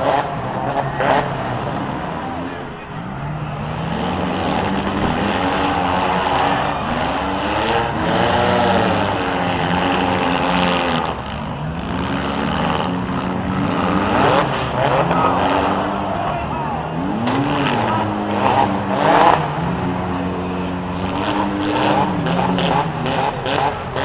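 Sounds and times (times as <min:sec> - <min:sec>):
car engines revving: 0:00.0 - 0:24.0.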